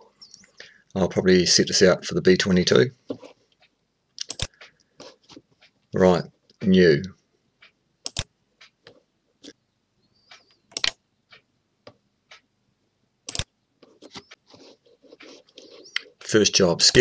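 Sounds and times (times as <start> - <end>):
computer mouse clicks: 3.6 - 4.9, 8.0 - 9.6, 10.3 - 12.4, 13.3 - 14.4.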